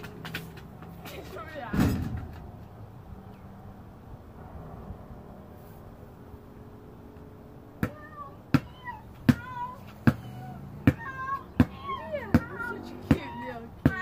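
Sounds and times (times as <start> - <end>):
basketball bouncing on concrete: 0.0 - 2.4, 7.8 - 14.0
child imitating cat meows: 7.9 - 13.6.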